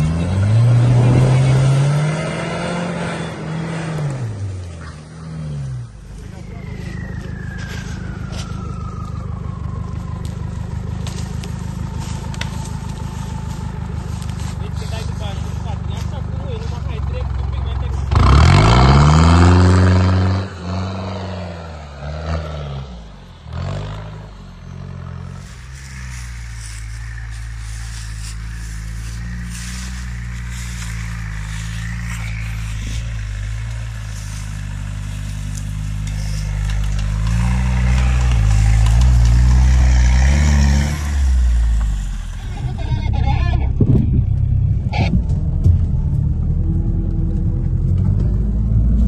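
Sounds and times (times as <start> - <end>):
diesel engine revving: 0.0 - 49.0
turbodiesel engine running slowly: 4.3 - 18.2, 23.0 - 49.0.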